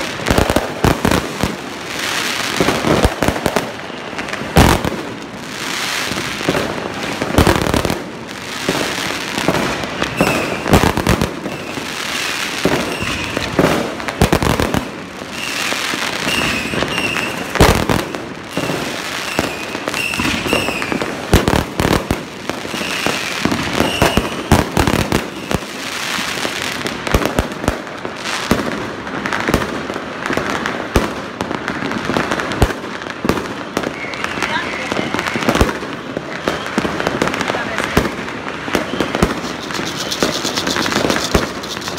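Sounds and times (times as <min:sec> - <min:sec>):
fireworks crackling: 0:00.0 - 0:41.9
firework shells bursting: 0:38.7 - 0:41.9.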